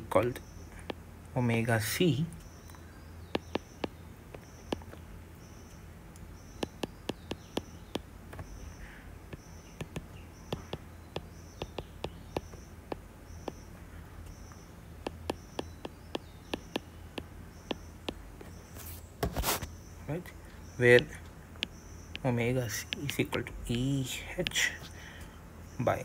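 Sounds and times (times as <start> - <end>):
stylus tapping on glass screen: 3.3 - 5.0, 6.6 - 8.5, 9.3 - 13.6, 15.0 - 18.2.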